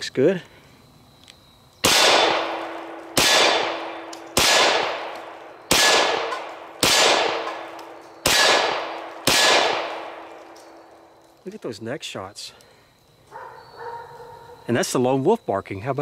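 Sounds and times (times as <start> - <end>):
pistol shots: 1.8 - 11.0.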